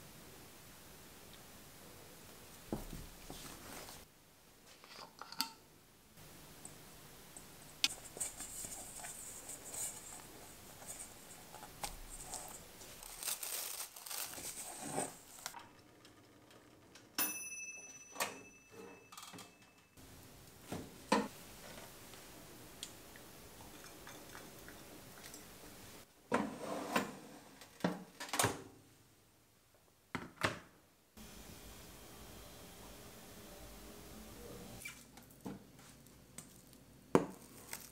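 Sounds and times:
short ringing ding: 17.2 - 19.9.

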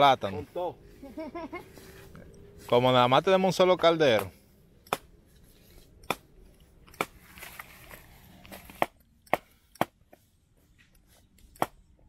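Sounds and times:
soft rustle: 5.2 - 8.8.

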